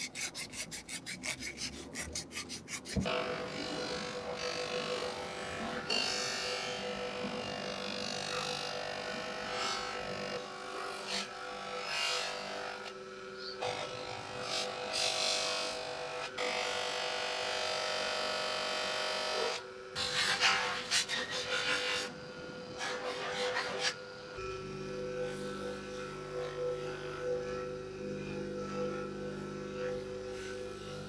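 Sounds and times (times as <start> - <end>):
metal rubbing on polishing wheel: 0.0 - 5.1, 20.0 - 22.1, 22.8 - 24.0
polishing motor humming: 0.0 - 10.8, 21.1 - 31.0.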